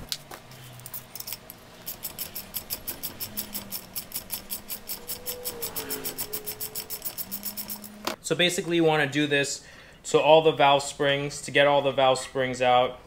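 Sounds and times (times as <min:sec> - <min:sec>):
ratchet wrench clicking: 0:00.9 - 0:08.1.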